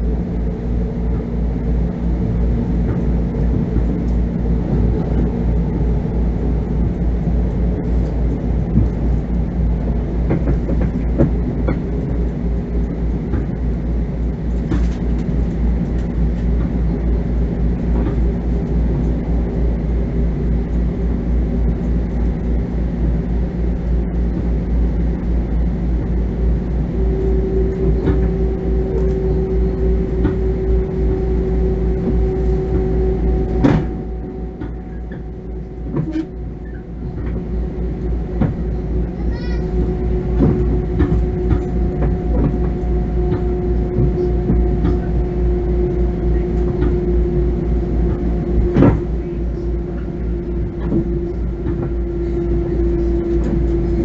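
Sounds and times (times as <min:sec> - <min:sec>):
train running rumble: 0:00.0 - 0:54.0
faint held tones: 0:25.1 - 0:54.0.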